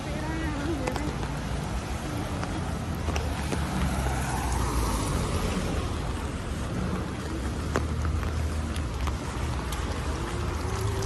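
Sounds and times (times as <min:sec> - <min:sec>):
city traffic rumble and hiss: 0:00.0 - 0:11.0
vehicle passing: 0:00.0 - 0:11.0.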